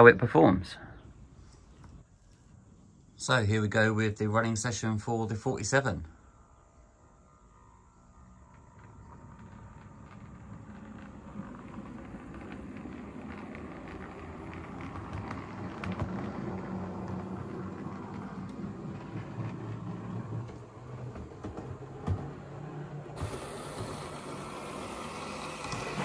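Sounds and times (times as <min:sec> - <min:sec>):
model locomotive motor hum: 0:08.2 - 0:26.0.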